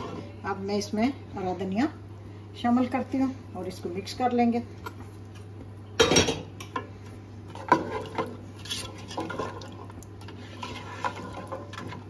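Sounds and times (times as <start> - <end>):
ladle scraping a pot: 7.5 - 12.0.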